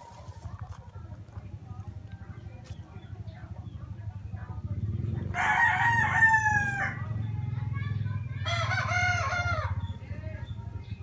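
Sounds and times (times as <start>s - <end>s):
rooster crowing: 5.4s - 7.1s, 8.4s - 9.8s.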